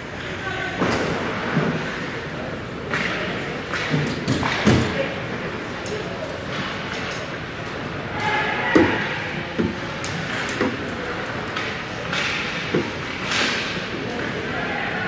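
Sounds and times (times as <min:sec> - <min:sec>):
hockey sticks and puck knocking: 0:02.9 - 0:05.0, 0:08.2 - 0:14.4.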